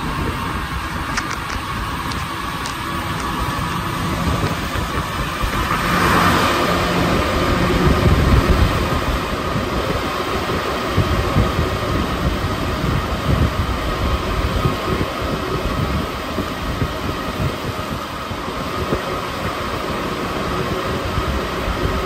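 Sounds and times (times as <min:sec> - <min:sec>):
metro train running rumble: 0:00.0 - 0:22.0.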